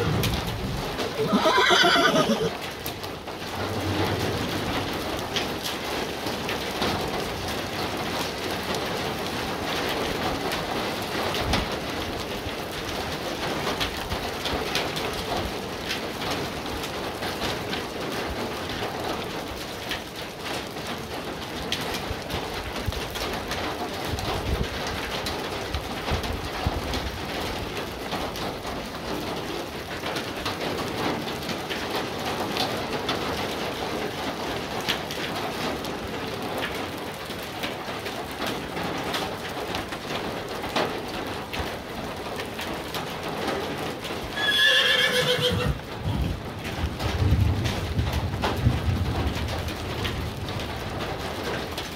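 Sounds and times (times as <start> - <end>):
low thunder rumble: 0.0 - 1.2, 3.3 - 6.1, 45.7 - 51.1
heavy rain on grass and pond: 0.0 - 51.9.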